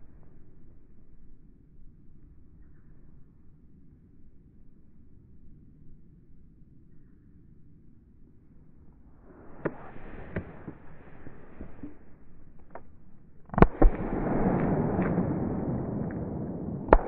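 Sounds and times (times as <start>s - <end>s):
rustling hiss: 9.1s - 12.6s
sharp crack: 9.2s - 17.0s
shotgun firing: 13.5s - 17.0s.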